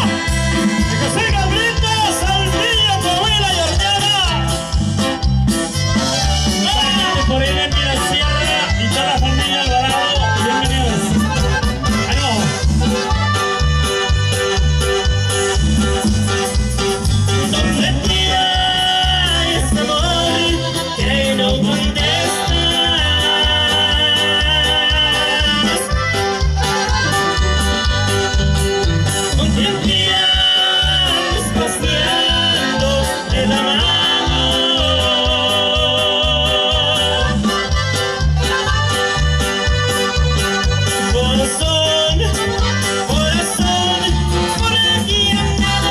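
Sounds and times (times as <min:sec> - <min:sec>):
accordion: 0:00.0 - 0:45.9
electric bass: 0:00.0 - 0:45.9
live band playing: 0:00.0 - 0:45.9
steady drum beat: 0:00.0 - 0:45.9
saxophone: 0:22.0 - 0:29.4.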